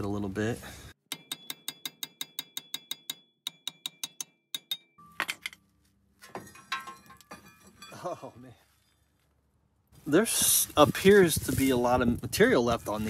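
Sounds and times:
hammer tapping on metal: 1.1s - 5.6s.

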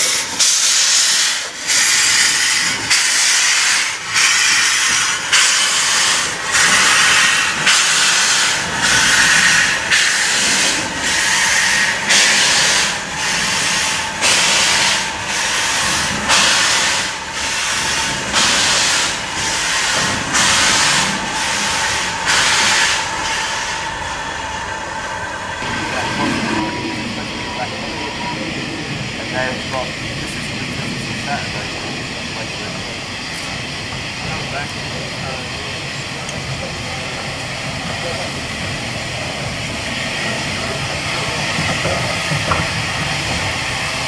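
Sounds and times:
steam hiss: 0.0s - 24.8s
steam locomotive exhaust chuffs: 0.0s - 44.0s.

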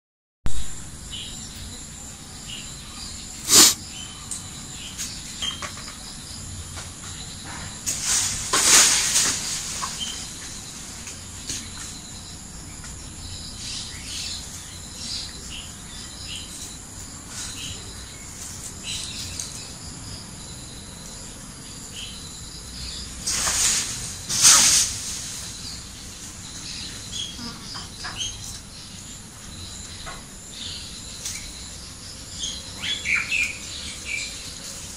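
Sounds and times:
short chirps: 3.4s - 3.8s.

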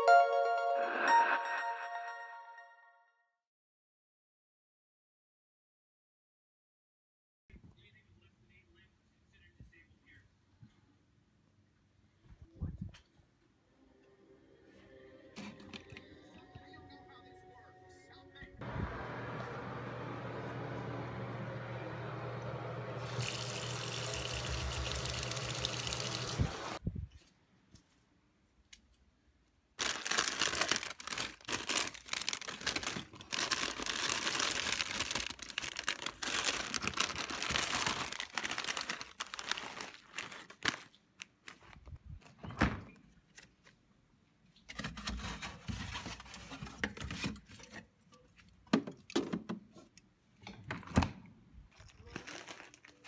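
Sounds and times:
rustling and crinkling handling: 29.8s - 42.4s, 44.6s - 48.6s, 51.7s - 53.0s.

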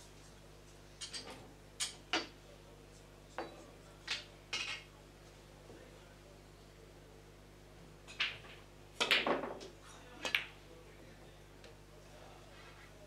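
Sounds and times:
billiard balls clacking: 4.1s - 4.9s, 8.1s - 10.6s.

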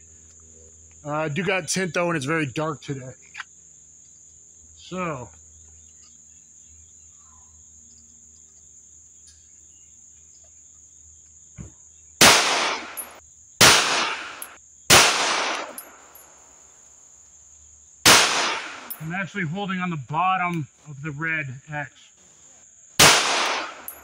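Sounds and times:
high insect buzz: 3.2s - 19.6s, 22.1s - 24.0s
pistol shots echoing: 12.2s - 16.2s, 18.1s - 19.1s, 23.0s - 24.0s.

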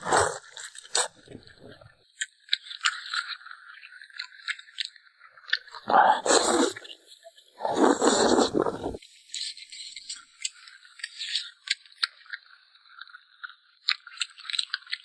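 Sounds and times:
chewing and crunching food: 0.0s - 15.0s
wet mouth clicks: 5.6s - 7.0s, 7.6s - 9.0s.

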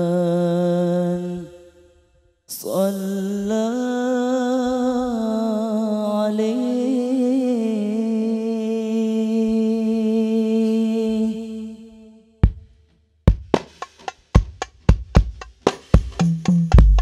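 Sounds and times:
man singing unaccompanied: 0.0s - 1.8s, 2.5s - 12.3s.

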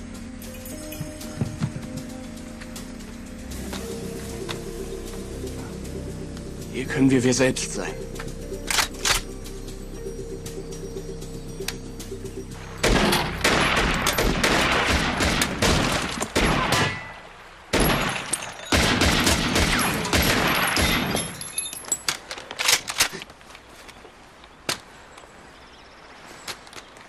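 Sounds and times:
gunshots in rapid volleys: 12.8s - 21.4s.

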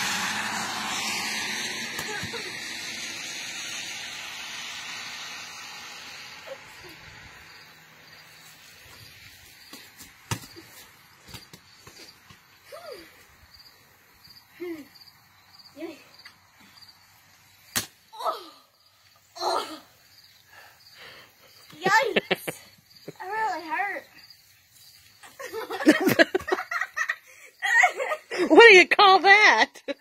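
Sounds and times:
passing vehicle: 0.0s - 9.2s
ball slapping hands: 1.9s - 2.4s, 9.7s - 12.4s, 17.7s - 18.0s
cricket chirping: 5.7s - 28.5s.

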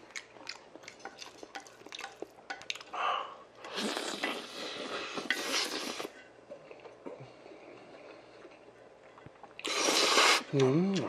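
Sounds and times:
loud slurping of noodles: 3.7s - 6.2s, 9.6s - 10.5s.

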